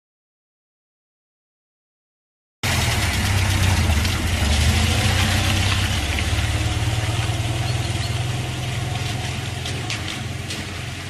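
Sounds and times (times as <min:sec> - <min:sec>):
engine rumbling: 0:02.6 - 0:11.0.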